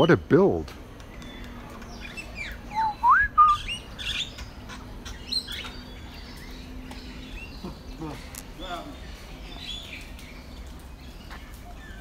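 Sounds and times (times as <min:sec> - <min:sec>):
birds chirping: 0:00.0 - 0:12.0
loud whistled bird note: 0:02.7 - 0:03.8.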